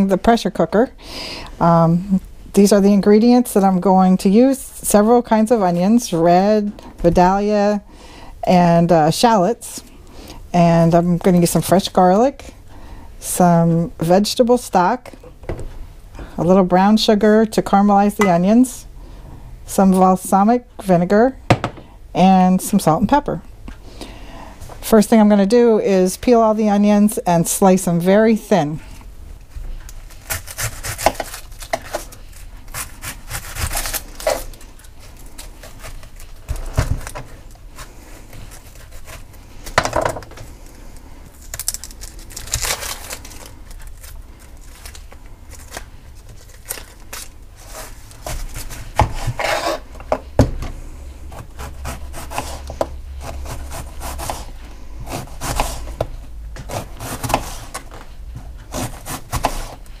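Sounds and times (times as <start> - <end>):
onion skin rustling: 29.5 - 50.2.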